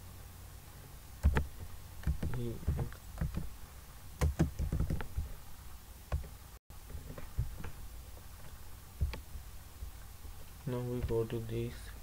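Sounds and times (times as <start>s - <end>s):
steady low hum: 0.0s - 12.0s
mouse and keyboard clicks: 1.2s - 3.5s.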